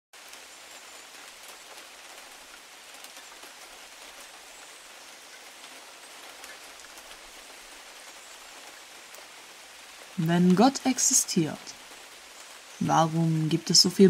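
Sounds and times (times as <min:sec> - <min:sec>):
heavy rain hiss: 0:00.2 - 0:14.0
sharp raindrop ticks: 0:05.2 - 0:13.8.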